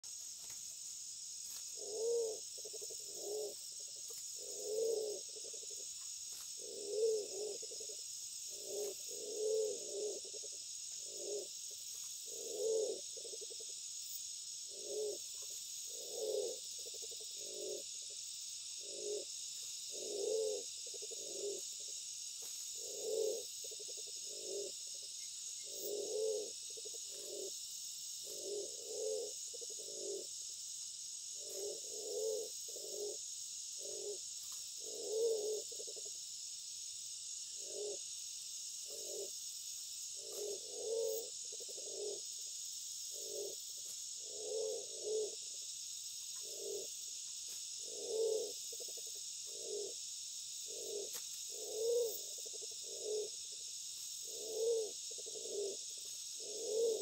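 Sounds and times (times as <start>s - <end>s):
dove cooing: 1.7s - 13.8s, 14.7s - 17.9s, 18.8s - 21.7s, 22.8s - 24.8s, 25.6s - 27.6s, 28.2s - 30.3s, 31.4s - 33.2s, 33.8s - 34.2s, 34.8s - 36.1s, 37.6s - 38.0s, 38.9s - 39.3s, 40.2s - 42.2s, 43.1s - 43.6s, 44.2s - 45.4s, 46.4s - 46.9s, 47.8s - 50.0s, 50.7s - 53.4s, 54.2s - 57.0s.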